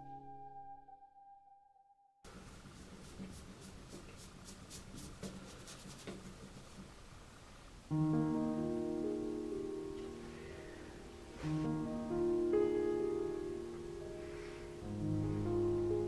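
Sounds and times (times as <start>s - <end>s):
piano music: 0.0s - 1.6s, 7.9s - 16.0s
faint room hiss: 2.3s - 16.0s
paintbrush scratching canvas: 2.4s - 6.8s.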